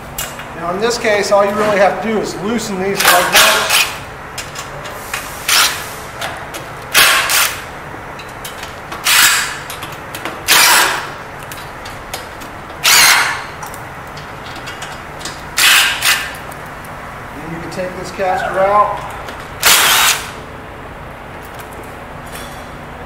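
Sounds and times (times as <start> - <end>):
cordless driver spinning: 12.8 - 13.4.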